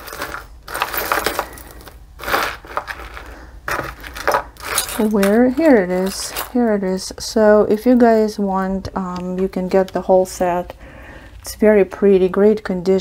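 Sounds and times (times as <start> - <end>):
jewelry clinking and rustling: 0.0 - 7.1.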